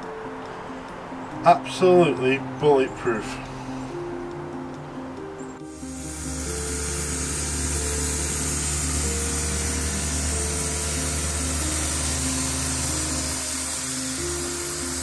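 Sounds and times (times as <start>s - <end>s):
background music: 0.0s - 15.0s
boat diesel engine drone: 5.6s - 15.0s
wind and spray hiss: 5.6s - 15.0s.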